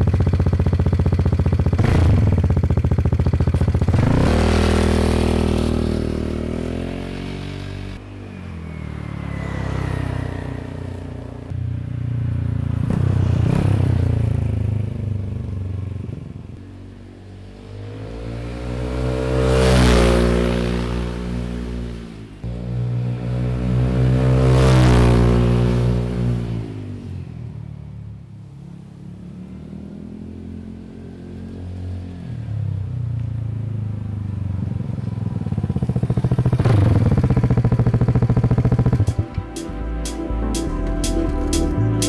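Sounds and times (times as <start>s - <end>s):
scooter engine revving: 0.0s - 16.5s, 17.5s - 27.2s, 34.4s - 39.6s
scooter passing by: 0.0s - 42.0s.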